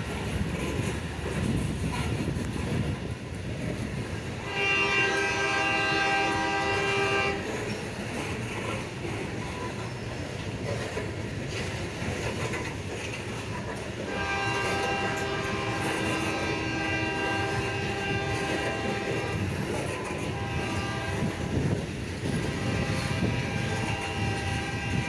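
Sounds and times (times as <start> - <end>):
freight cars rumbling on rails: 0.0 - 25.0
locomotive air horn: 4.4 - 7.6, 14.0 - 25.0.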